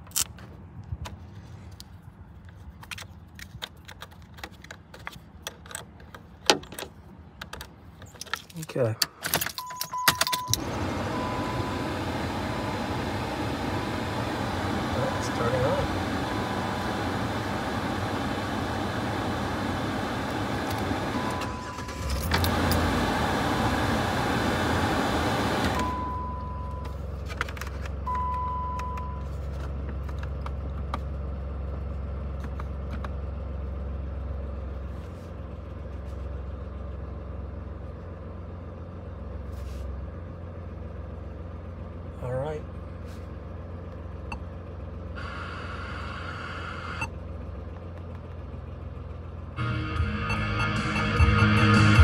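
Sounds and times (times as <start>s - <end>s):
short electronic beeps: 9.6s - 11.7s.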